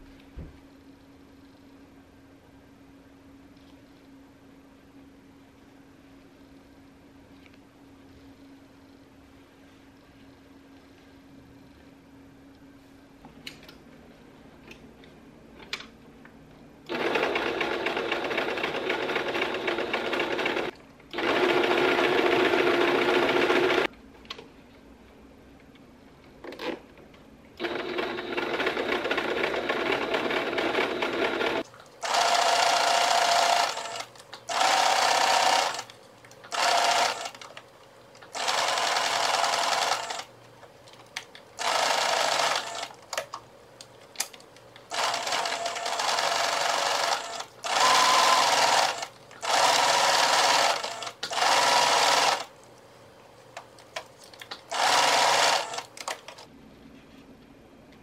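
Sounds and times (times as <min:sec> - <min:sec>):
sewing machine stitching: 0:16.9 - 0:23.9, 0:27.6 - 0:35.9, 0:36.5 - 0:37.5, 0:38.3 - 0:40.3, 0:41.6 - 0:43.0, 0:44.9 - 0:52.5, 0:54.7 - 0:56.4.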